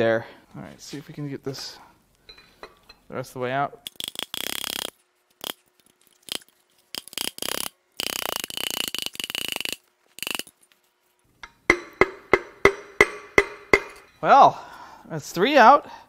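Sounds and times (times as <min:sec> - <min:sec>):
rapid ratchet-like clicking: 0:03.9 - 0:05.6, 0:06.2 - 0:10.6.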